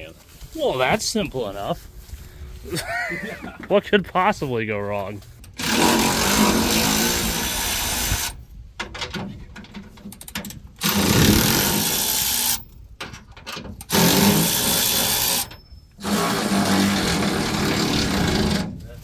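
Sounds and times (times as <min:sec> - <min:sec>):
handheld power tool running: 0:05.6 - 0:08.4, 0:10.8 - 0:12.6, 0:13.9 - 0:18.7
clicks and rattles: 0:08.8 - 0:14.0.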